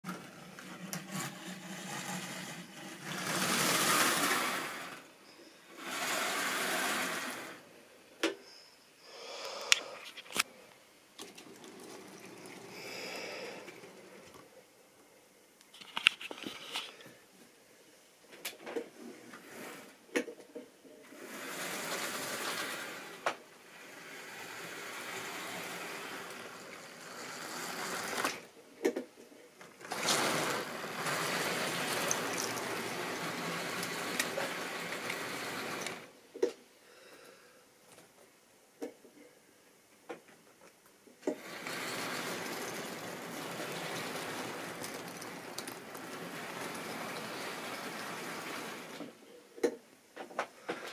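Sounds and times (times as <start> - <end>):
model train wheels rattling: 0.1 - 5.1, 5.8 - 7.6, 11.2 - 14.4, 21.1 - 28.5, 29.8 - 36.1, 41.2 - 49.1.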